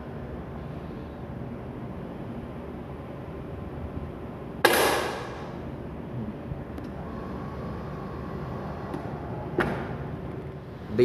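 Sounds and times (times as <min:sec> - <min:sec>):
faint background hum: 0:00.0 - 0:11.0
air rifle shot: 0:04.6 - 0:05.6.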